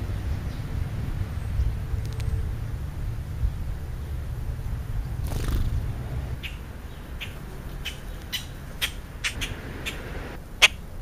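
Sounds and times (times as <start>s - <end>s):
steady low rumble: 0.0s - 7.2s
sparrows chirping: 3.4s - 10.9s.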